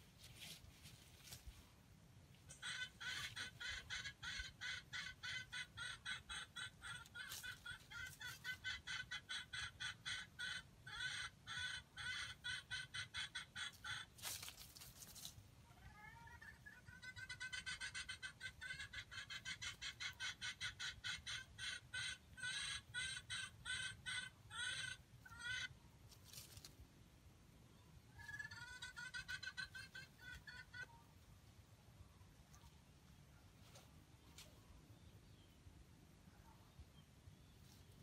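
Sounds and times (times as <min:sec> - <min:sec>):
junglefowl clucking: 0:02.5 - 0:26.7, 0:28.1 - 0:31.1.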